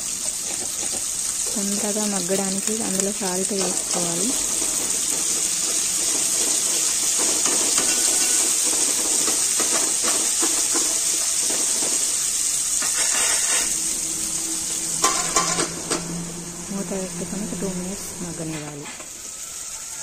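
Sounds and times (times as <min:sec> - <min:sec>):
onions sizzling in hot oil: 0:00.0 - 0:20.0
metal ladle scraping pot: 0:03.6 - 0:19.0.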